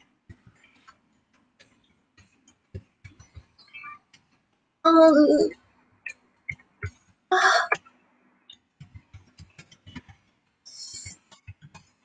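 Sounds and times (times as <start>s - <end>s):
soft clicks and taps: 0.0s - 4.6s, 8.5s - 12.0s.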